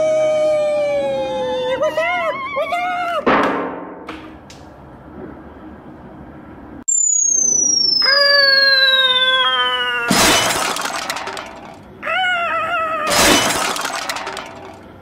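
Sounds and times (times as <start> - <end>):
cartoon cry: 0.0 - 3.3, 8.0 - 10.5, 12.0 - 14.4
cartoon falling whistle: 6.9 - 11.4
glass shattering crash: 10.1 - 11.7, 13.1 - 14.7.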